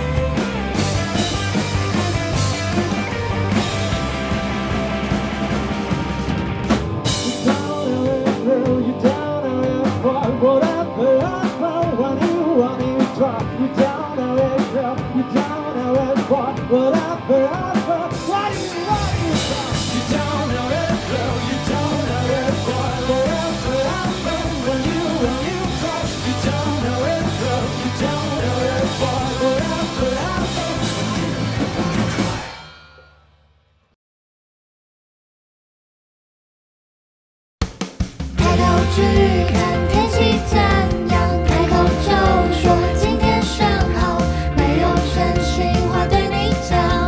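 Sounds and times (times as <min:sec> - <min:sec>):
electric guitars: 0:00.0 - 0:32.9, 0:38.4 - 0:47.0
drum kit: 0:00.0 - 0:33.2, 0:37.6 - 0:47.0
man singing: 0:07.1 - 0:31.5, 0:38.4 - 0:47.0.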